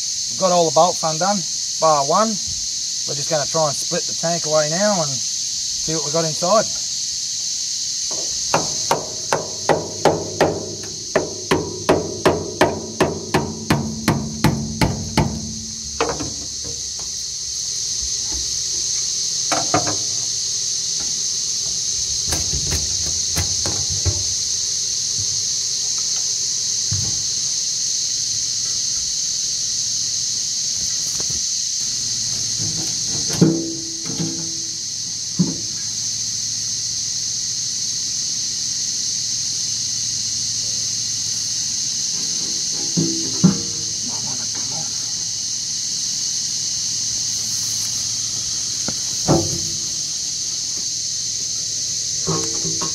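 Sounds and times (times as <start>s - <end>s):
steady high hiss: 0.0s - 52.9s
hammer knocking on metal: 8.1s - 17.2s, 19.5s - 20.2s, 22.2s - 24.5s, 42.8s - 43.9s.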